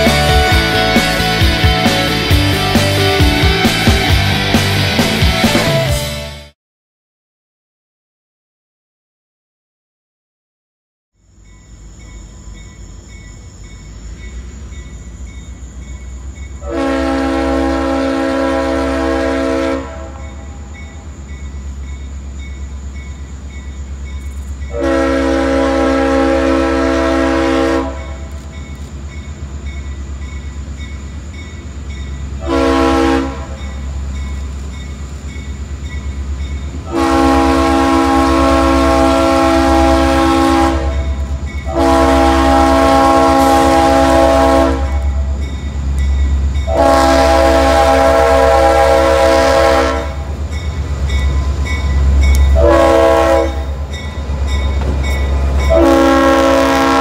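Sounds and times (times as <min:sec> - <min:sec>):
locomotive air horn blasts: 0:16.6 - 0:20.6, 0:24.7 - 0:28.3, 0:32.4 - 0:33.7, 0:36.9 - 0:45.4, 0:46.7 - 0:50.4, 0:52.5 - 0:54.0, 0:55.6 - 0:57.0.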